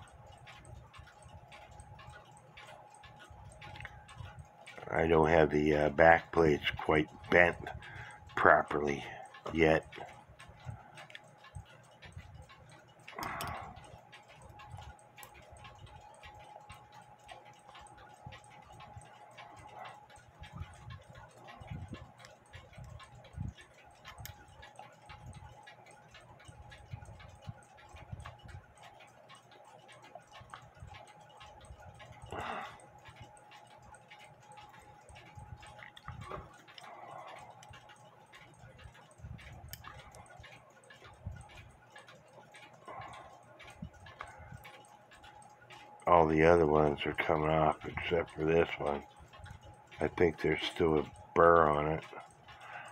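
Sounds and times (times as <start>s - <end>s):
clock ticking: 0.0s - 52.9s.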